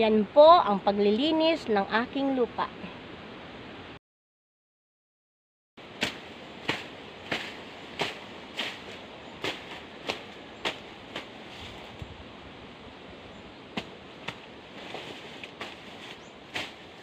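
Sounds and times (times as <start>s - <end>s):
leaves rustling: 5.8s - 17.0s
stems snapping: 6.0s - 11.3s, 13.8s - 16.8s.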